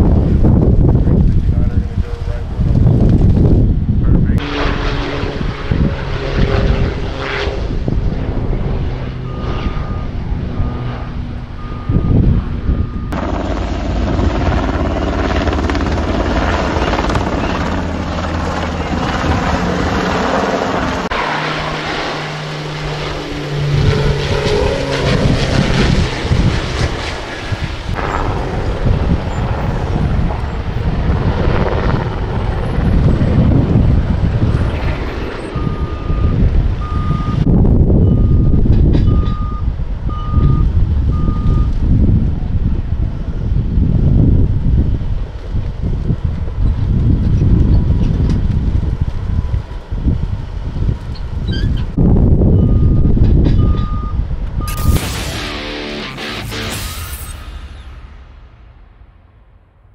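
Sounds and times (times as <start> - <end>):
propeller aircraft engines: 0.0 - 56.8
helicopter flying overhead: 0.0 - 59.9
vehicle reversing beeper: 9.1 - 13.2, 34.6 - 41.8, 52.5 - 58.1.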